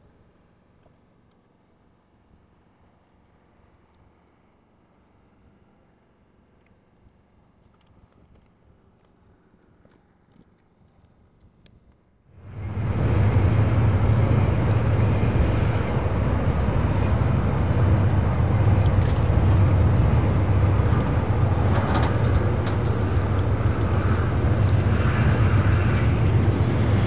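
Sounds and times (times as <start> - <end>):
freight train rumbling on bridge: 12.4 - 27.0
faint clanks: 17.6 - 26.1.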